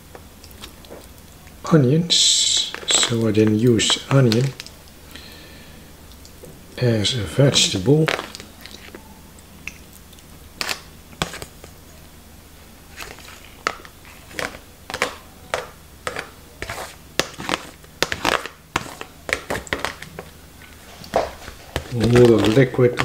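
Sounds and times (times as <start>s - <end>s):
plastic tray crinkling: 2.6s - 4.8s, 7.6s - 9.0s, 12.9s - 23.0s
metal spoon scraping plastic tray: 16.1s - 20.0s.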